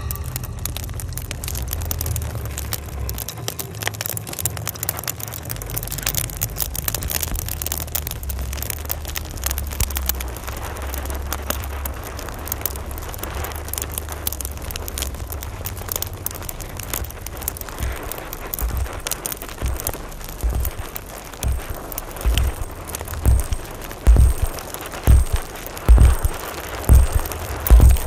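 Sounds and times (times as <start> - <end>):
steady low drone: 0.0 - 2.0, 17.8 - 28.0
glitchy crackle of clicks: 0.0 - 28.0.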